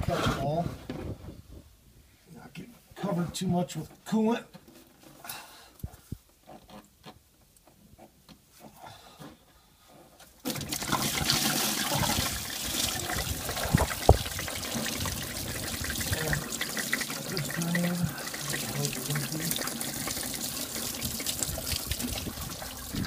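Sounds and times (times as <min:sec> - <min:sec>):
coolant gushing and splashing: 0:10.4 - 0:23.0.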